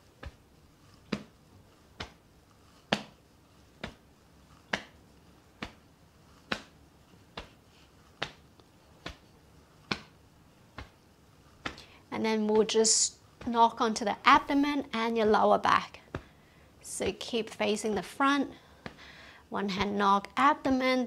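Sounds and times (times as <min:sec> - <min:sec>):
hands slapping body: 0:00.2 - 0:00.4, 0:01.0 - 0:02.2, 0:02.8 - 0:03.2, 0:03.8 - 0:04.0, 0:04.6 - 0:05.0, 0:05.6 - 0:07.6, 0:08.2 - 0:11.0, 0:11.6 - 0:11.9, 0:16.1 - 0:16.3.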